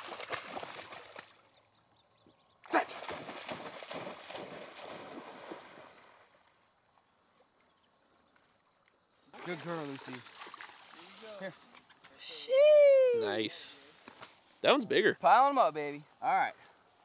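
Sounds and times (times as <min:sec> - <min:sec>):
loud splash: 0:00.0 - 0:01.3, 0:02.7 - 0:06.0, 0:09.4 - 0:11.1
dog splashing through water: 0:00.0 - 0:01.4, 0:02.7 - 0:06.1, 0:09.4 - 0:11.2.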